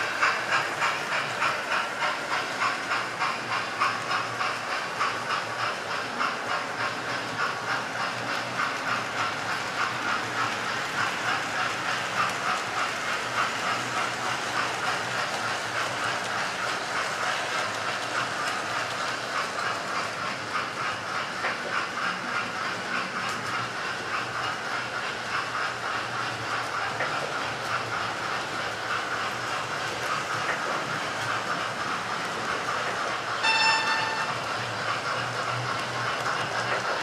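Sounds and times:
model trains whirring: 0.0 - 37.0
wheels clattering over rail joints: 0.0 - 37.0.

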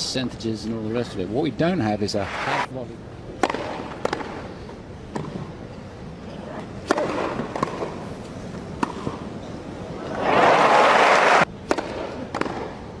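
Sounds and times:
tennis racket hitting ball: 6.8 - 8.0
crowd applauding and cheering: 10.2 - 11.4.

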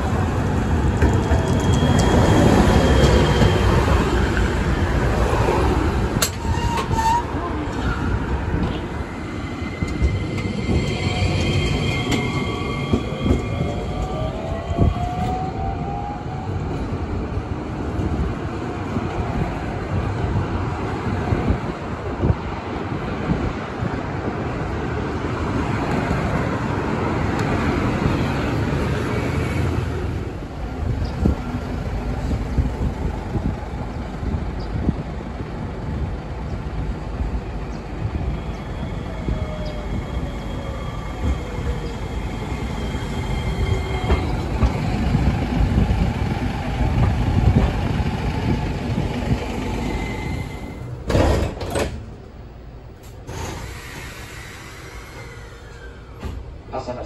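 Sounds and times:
tram wheels with electric whine: 0.0 - 7.1, 25.4 - 52.2, 52.9 - 56.6
tram doors clattering: 0.0 - 57.0
tram interior sound: 0.0 - 57.0
road traffic: 16.4 - 57.0.

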